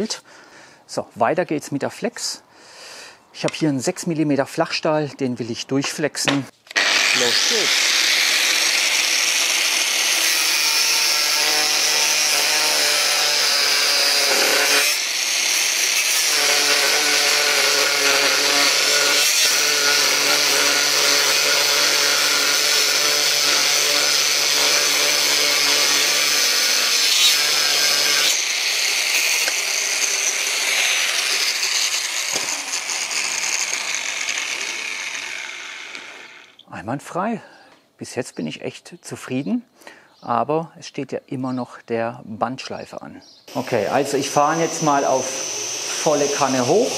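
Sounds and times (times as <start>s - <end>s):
angle grinder cutting steel: 6.7s - 36.6s, 43.5s - 46.9s
grinder winding down: 6.7s - 36.6s, 43.5s - 46.9s.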